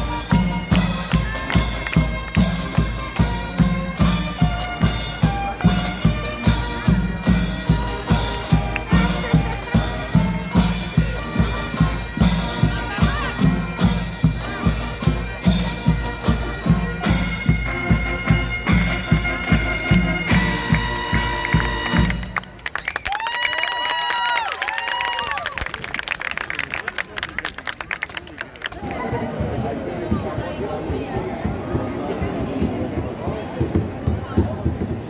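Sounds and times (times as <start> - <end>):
bagpipe drone: 0.0 - 22.5
military band playing a march: 0.0 - 22.5.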